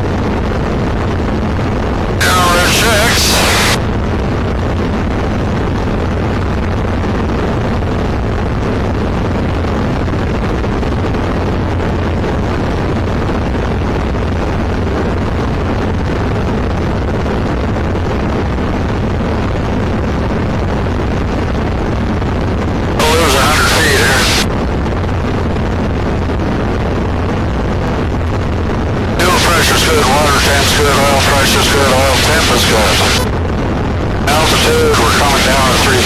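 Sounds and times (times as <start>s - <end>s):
wind noise: 0.0s - 36.0s
aircraft engine and propeller: 29.1s - 33.4s.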